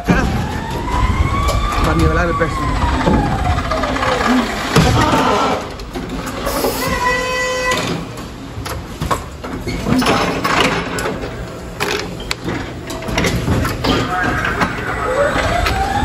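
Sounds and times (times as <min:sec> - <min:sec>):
forklift motor whirring: 0:00.0 - 0:05.0.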